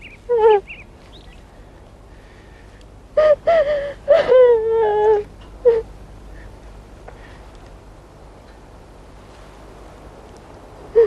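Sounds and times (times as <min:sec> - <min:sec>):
woman crying: 0:00.3 - 0:00.7, 0:03.2 - 0:05.9.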